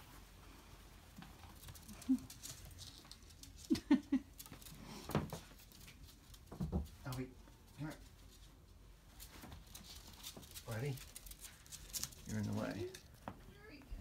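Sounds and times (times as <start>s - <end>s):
ferret rustling in fabric: 4.4s - 13.8s.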